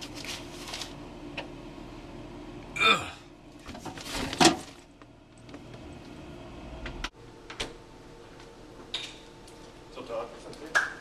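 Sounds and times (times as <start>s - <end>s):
low room hum: 0.0s - 11.0s
refrigerator items knocking: 3.6s - 4.8s.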